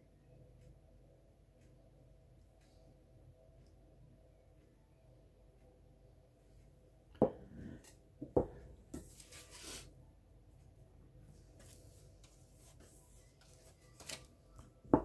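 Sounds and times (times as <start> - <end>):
brush rubbing paint on palette: 9.0 - 9.9, 11.6 - 13.6.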